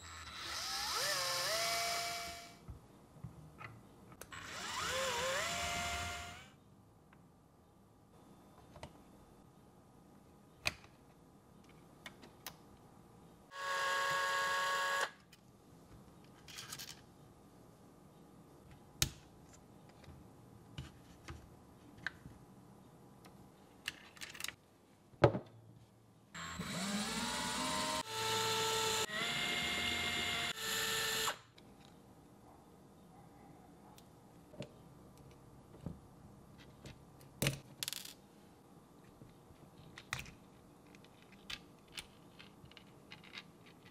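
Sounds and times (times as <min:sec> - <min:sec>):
electric screwdriver whine: 0:26.4 - 0:31.4
clicks of small parts handled: 0:39.8 - 0:43.9.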